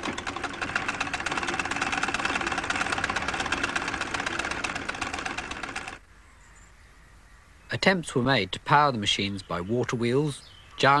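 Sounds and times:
sewing machine clattering: 0.0s - 6.0s.

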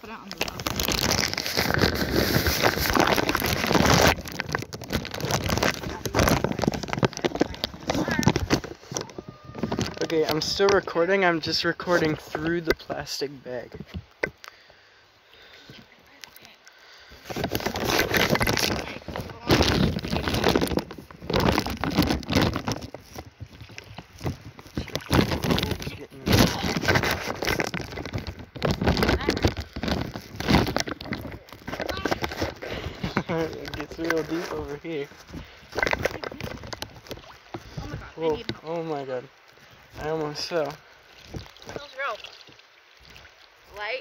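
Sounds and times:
plastic bag crinkling: 0.0s - 10.9s, 17.3s - 38.5s
muffled water splashing: 0.0s - 44.0s.

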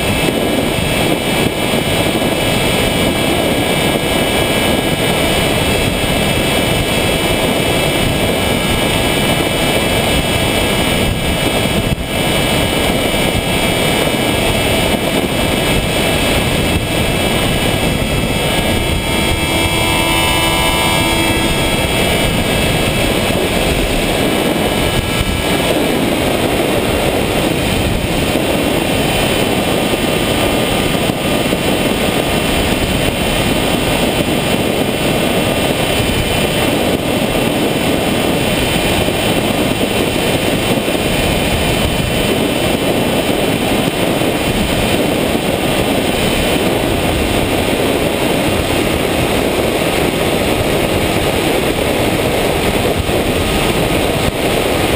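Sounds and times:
propeller motor noise: 0.0s - 54.9s
wind rushing: 0.0s - 54.9s
thin whining tone: 0.1s - 38.0s.

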